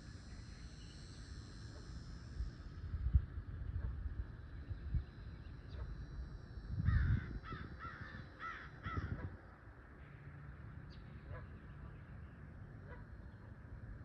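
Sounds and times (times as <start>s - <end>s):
steady low rumble: 0.0s - 14.0s
bird cawing: 6.9s - 9.4s.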